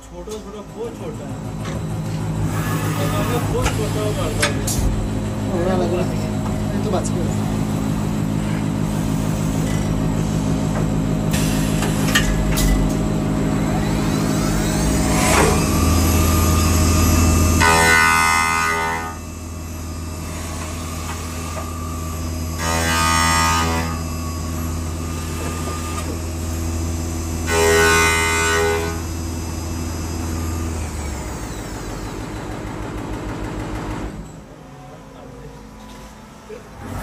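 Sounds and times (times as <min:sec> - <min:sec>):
milling machine low hum: 0:00.0 - 0:22.9
multi-tone cutter whine: 0:00.0 - 0:32.5.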